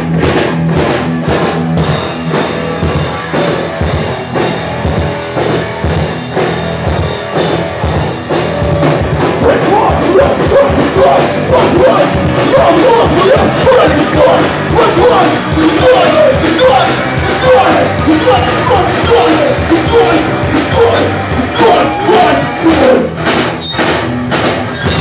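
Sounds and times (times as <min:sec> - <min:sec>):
punk rock band playing: 0:00.0 - 0:25.0
voices singing or shouting: 0:08.3 - 0:23.1.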